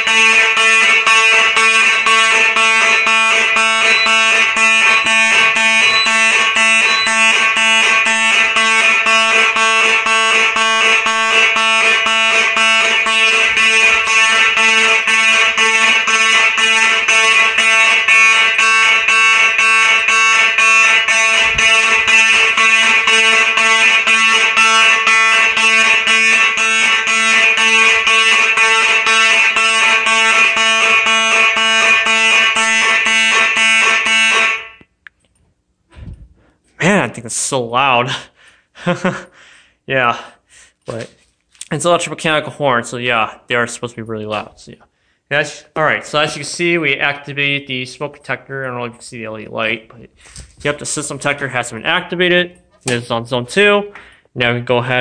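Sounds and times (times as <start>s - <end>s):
fire alarm horns blasting: 0.0s - 35.0s.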